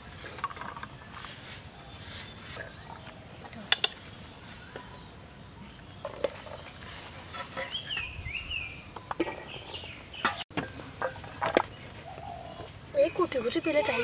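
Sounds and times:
bird calling: 11.7s - 14.0s.

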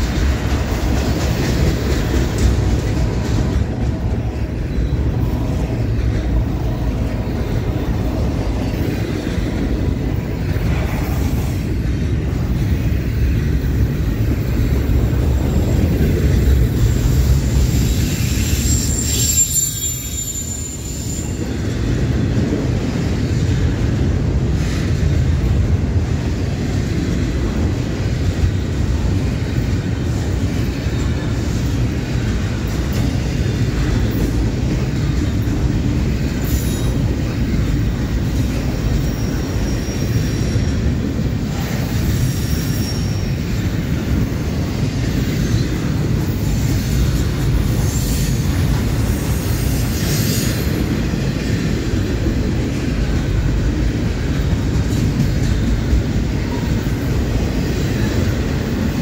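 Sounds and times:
train wheels rumbling on rails: 0.0s - 59.0s
high-pitched wheel squeals: 17.6s - 21.5s, 42.2s - 43.5s.

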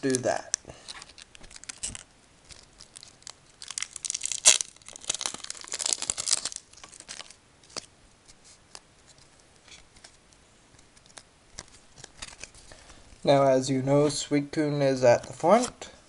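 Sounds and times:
card wrapper crinkling and tearing: 0.0s - 7.9s, 10.8s - 12.8s.

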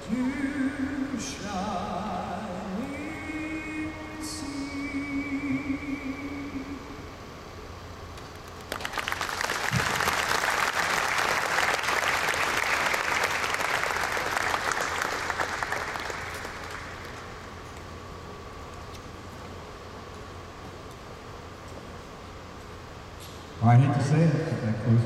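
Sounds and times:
audience applauding: 8.6s - 17.4s.

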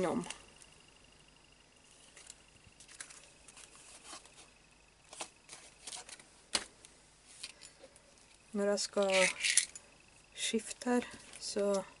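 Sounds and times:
plastic pocket rustling: 5.1s - 6.7s.

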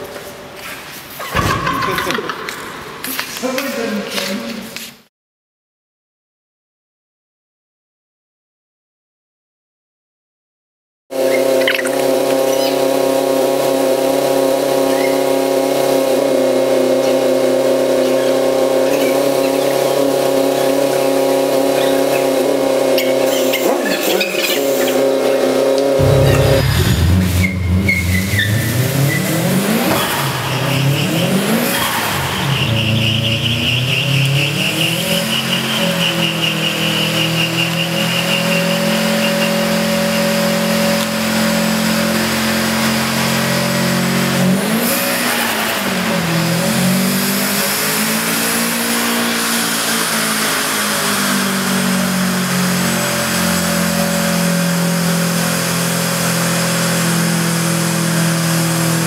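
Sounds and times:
car engine revving: 11.2s - 59.0s
tyre squeal: 14.8s - 15.5s, 26.0s - 39.7s.

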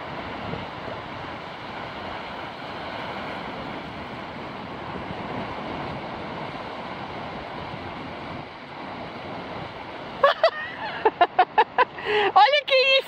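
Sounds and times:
wind noise on microphone: 0.0s - 10.2s
waves washing up a beach: 0.0s - 13.0s.

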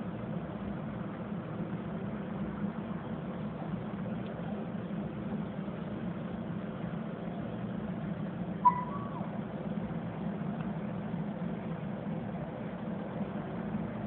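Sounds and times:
low mechanical hum: 0.0s - 14.0s
puppy yelp: 8.6s - 9.4s.

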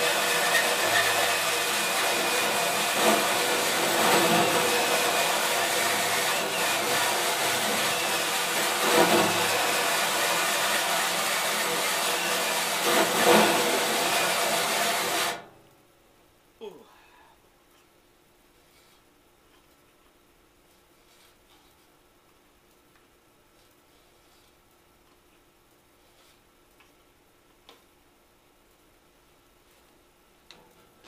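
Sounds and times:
drill motor whine: 0.0s - 15.4s
hole saw grinding metal: 0.0s - 15.4s.

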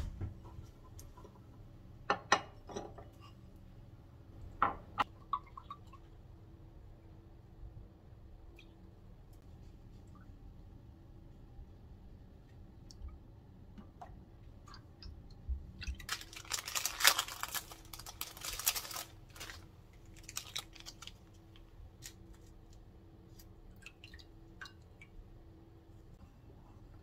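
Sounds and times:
plastic packet crinkling and tearing: 15.9s - 22.2s.

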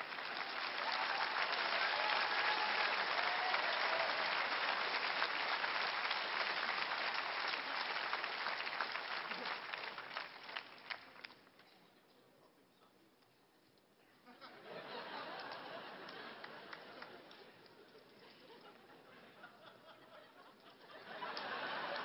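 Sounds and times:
large audience applauding: 0.0s - 11.6s, 14.9s - 18.6s, 20.7s - 22.0s.

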